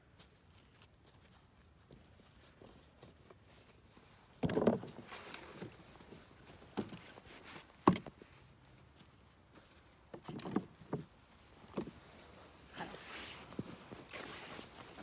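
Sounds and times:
hands digging in soil: 11.1s - 15.0s.

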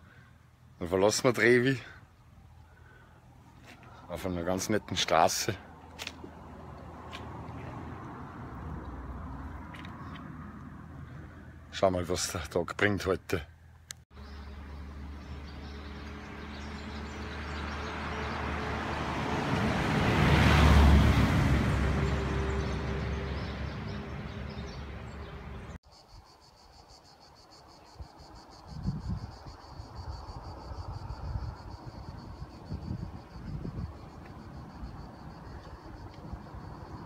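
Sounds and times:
vehicle driving past: 6.3s - 11.6s, 14.2s - 25.8s
wind gusting on microphone: 28.6s - 37.0s.

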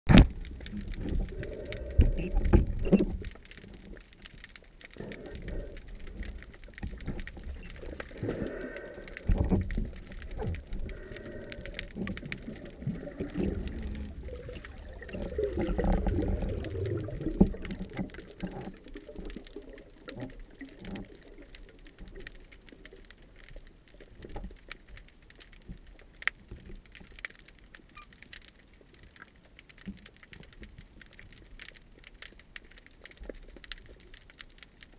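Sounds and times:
muffled underwater rushing: 0.1s - 3.9s, 4.9s - 22.2s.

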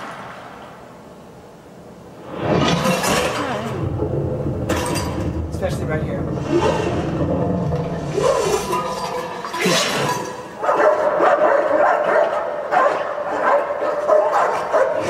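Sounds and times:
noise rush with falling sweep: 0.0s - 9.5s
dogs barking: 10.5s - 15.0s.

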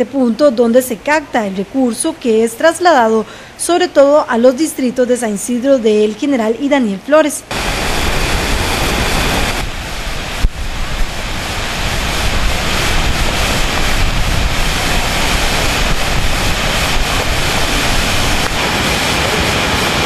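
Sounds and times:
flooded river rushing: 7.5s - 20.0s.

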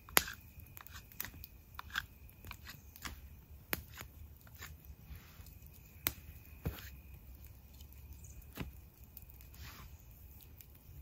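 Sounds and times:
knife scraping wood: 0.1s - 5.5s.

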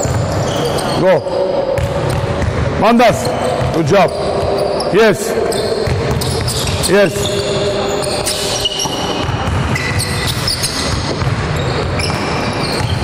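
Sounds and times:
basketballs bouncing: 0.0s - 13.0s
sneakers squeaking on wooden floor: 0.0s - 13.0s.

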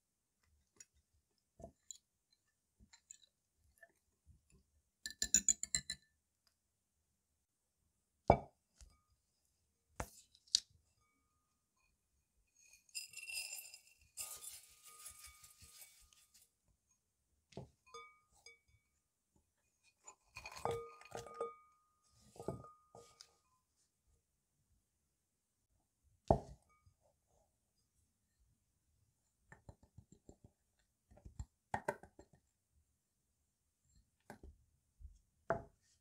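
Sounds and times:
glass bowl ringing: 17.9s - 18.7s, 20.5s - 23.1s.

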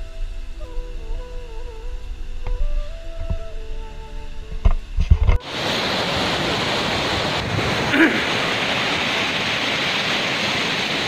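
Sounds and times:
music: 0.0s - 5.4s
waterfall rushing over rocks: 5.3s - 11.0s.

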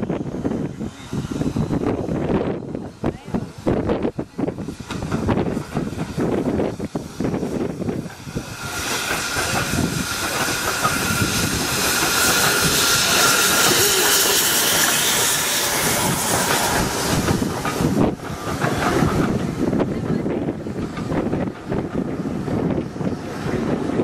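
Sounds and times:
steam hissing: 0.0s - 24.0s
steam locomotive passing: 0.0s - 24.0s
wheels clicking over rail joints: 16.3s - 22.2s.

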